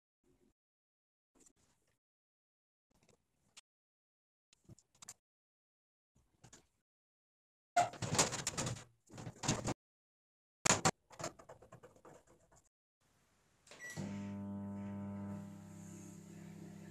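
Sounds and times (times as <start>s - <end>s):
microwave oven humming: 13.8s - 16.9s.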